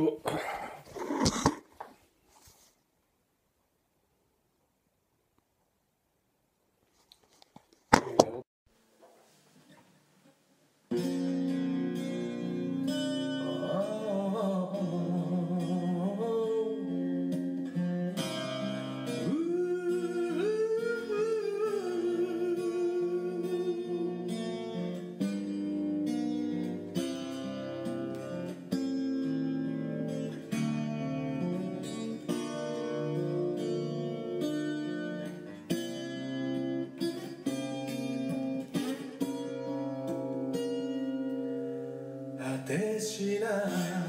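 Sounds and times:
plucked acoustic guitar chords: 0:10.9 - 0:44.0
person singing: 0:13.4 - 0:17.2, 0:19.2 - 0:24.8, 0:42.4 - 0:44.0.

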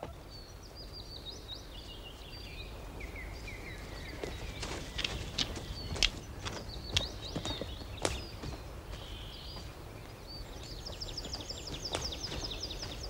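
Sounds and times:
birds chirping: 0:00.0 - 0:13.0
footstep crack in undergrowth: 0:04.2 - 0:09.7.

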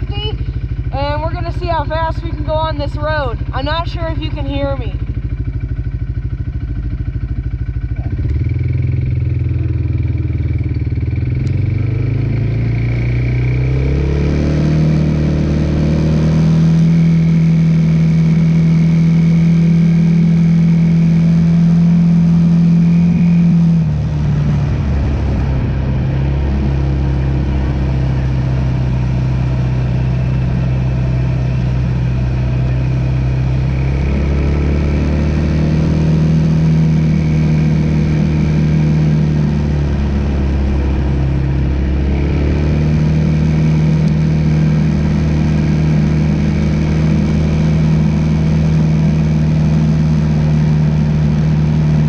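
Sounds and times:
atv engine running hard: 0:00.0 - 0:52.0
wind on microphone: 0:23.8 - 0:28.2.

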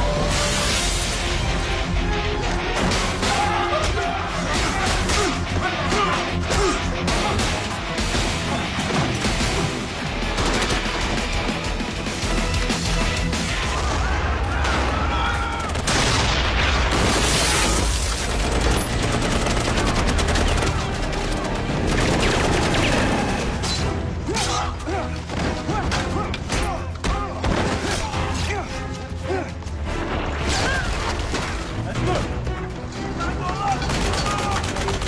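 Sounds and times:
film soundtrack music: 0:00.0 - 0:35.0
gunfire: 0:06.6 - 0:11.7, 0:15.6 - 0:23.4
explosions: 0:15.7 - 0:18.3.

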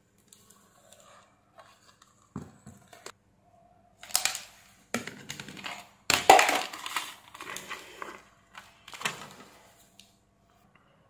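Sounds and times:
plastic parts knocking and scraping: 0:04.0 - 0:09.7.

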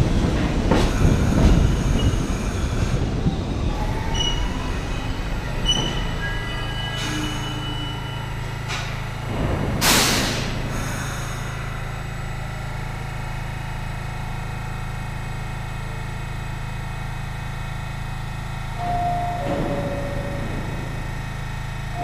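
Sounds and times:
subway train rumbling: 0:00.0 - 0:22.0
loud hiss of air: 0:09.8 - 0:11.6.

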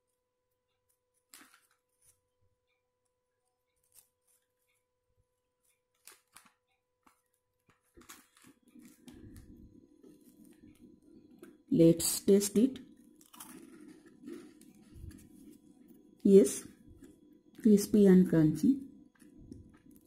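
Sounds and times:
cookie snapping: 0:06.0 - 0:09.5, 0:13.1 - 0:15.2.

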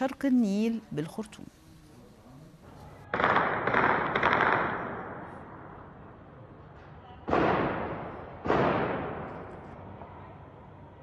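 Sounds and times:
gunfire bursts: 0:03.1 - 0:05.3.

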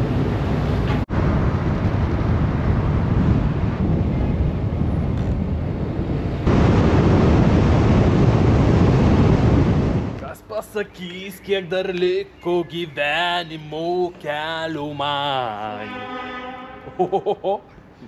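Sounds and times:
wind buffeting microphone: 0:00.0 - 0:10.3.

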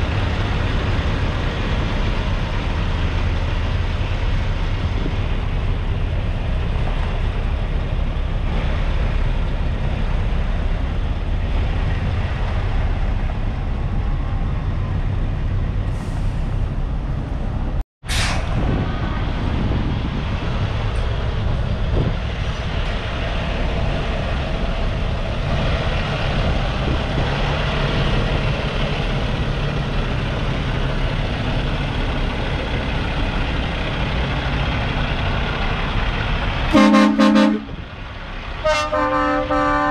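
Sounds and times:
diesel truck engine rumbling: 0:00.0 - 0:39.9
sharp air hiss: 0:18.1 - 0:18.6.

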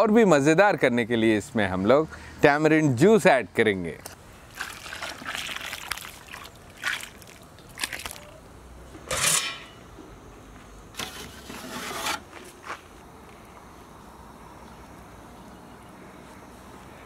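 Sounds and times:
liquid pouring into a pot: 0:04.6 - 0:08.1
rustling and scraping: 0:10.9 - 0:13.0.

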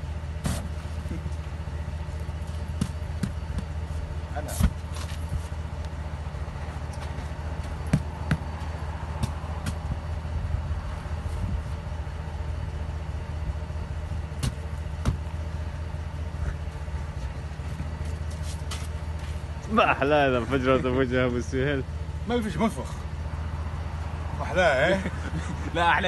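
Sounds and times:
engine idling: 0:00.0 - 0:26.0.

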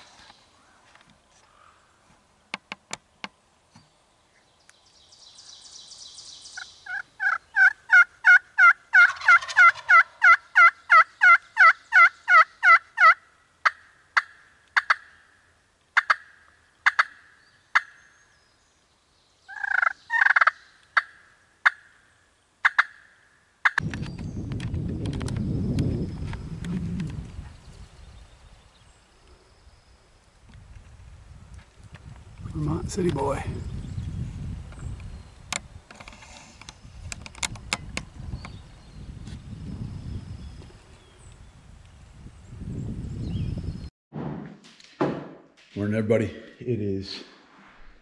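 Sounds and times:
turkey gobble: 0:06.8 - 0:15.1, 0:16.0 - 0:17.9, 0:19.5 - 0:21.9, 0:22.6 - 0:23.8
turkey yelping: 0:06.8 - 0:15.1, 0:16.0 - 0:17.2, 0:19.5 - 0:21.9, 0:22.6 - 0:23.8.

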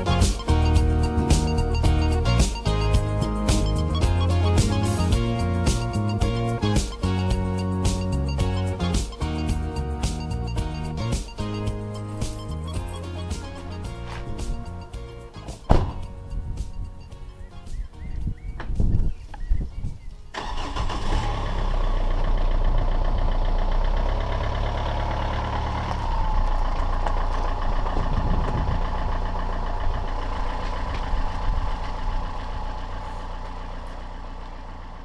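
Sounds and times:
car engine starting and idling: 0:00.0 - 0:18.0, 0:20.3 - 0:35.0.

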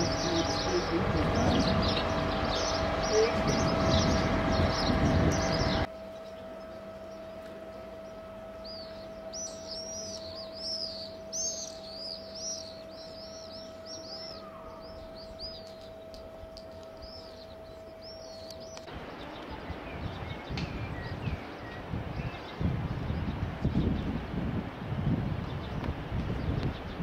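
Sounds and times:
wind noise: 0:00.0 - 0:05.9, 0:18.9 - 0:27.0
small birds chirping: 0:00.0 - 0:24.4
faint steady hum: 0:00.0 - 0:26.8.

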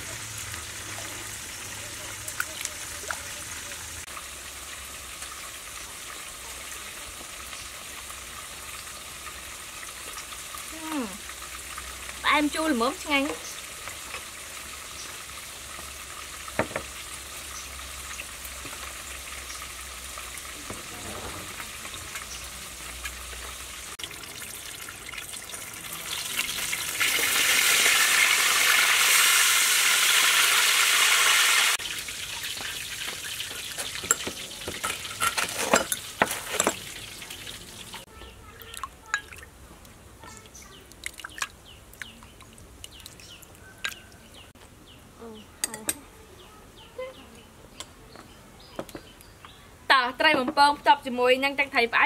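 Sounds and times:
fish sizzling in hot oil: 0:00.0 - 0:38.1.

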